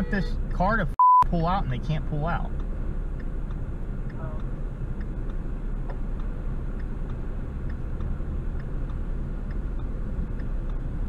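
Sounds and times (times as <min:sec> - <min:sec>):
car engine idling: 0:00.0 - 0:11.0
faint regular ticking: 0:01.8 - 0:11.0.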